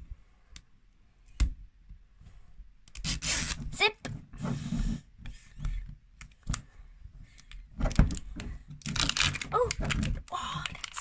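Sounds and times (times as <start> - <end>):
sharp clicks and crackles: 7.3 - 11.0
wrapping rustling and tearing: 8.8 - 11.0.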